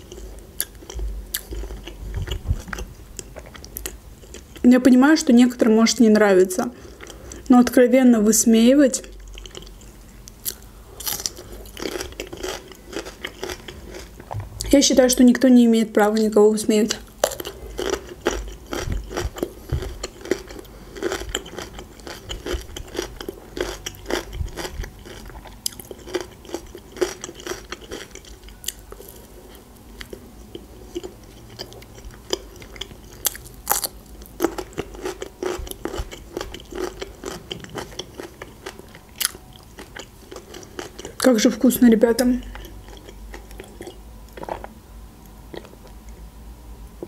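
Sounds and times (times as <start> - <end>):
wet chewing: 9.0 - 14.4, 17.2 - 41.3, 42.4 - 44.8.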